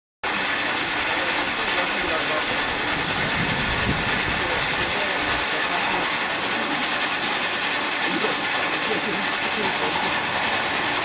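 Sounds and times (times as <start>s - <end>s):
sludge-turning machine running: 0.2s - 11.0s
low rumble: 2.5s - 5.5s.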